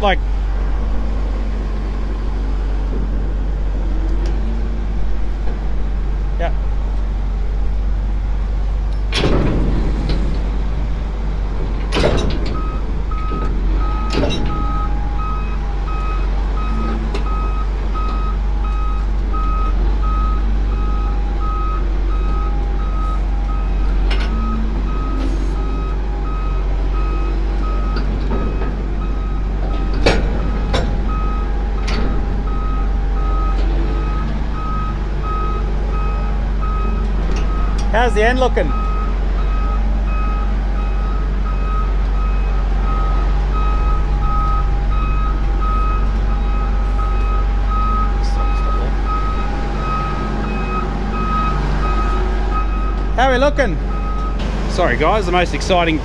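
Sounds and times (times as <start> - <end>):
heavy vehicle engine drone: 0.0 - 56.0
sharp knocks and clanks: 8.9 - 10.6, 11.6 - 15.1, 27.9 - 32.6
reversing alarm beeping: 12.5 - 54.4.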